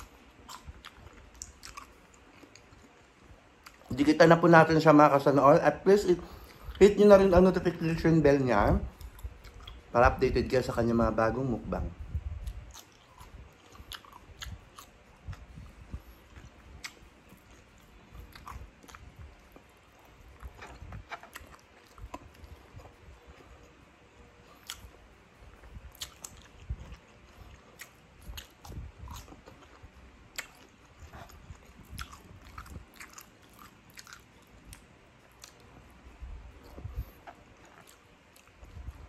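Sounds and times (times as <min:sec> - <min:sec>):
person chewing crunchy cucumber: 0:00.0 - 0:04.0, 0:08.9 - 0:10.2, 0:12.2 - 0:39.0.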